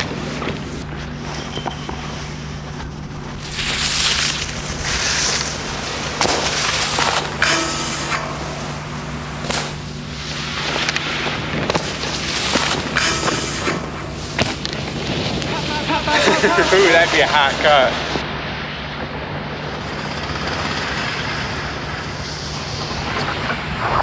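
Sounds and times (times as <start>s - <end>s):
skis scraping on snow: 0.0s - 18.2s
steady low hum: 0.0s - 24.0s.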